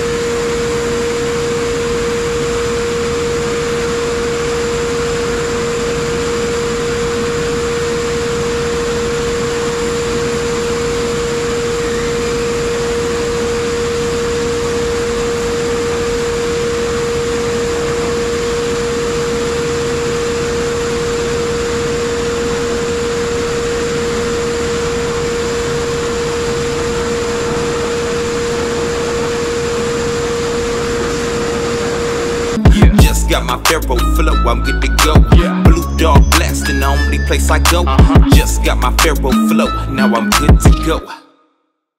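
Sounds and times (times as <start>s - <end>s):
steady tone: 31.7s - 41.2s.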